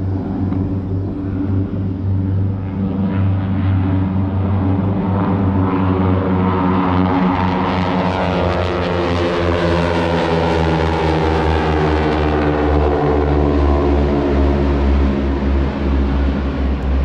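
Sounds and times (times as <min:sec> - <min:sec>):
propeller planes droning overhead: 0:00.0 - 0:17.0.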